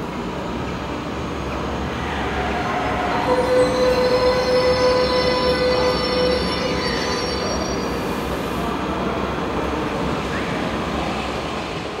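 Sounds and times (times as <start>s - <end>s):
train rolling rumble: 0.0s - 12.0s
train wheels squealing: 1.9s - 8.9s.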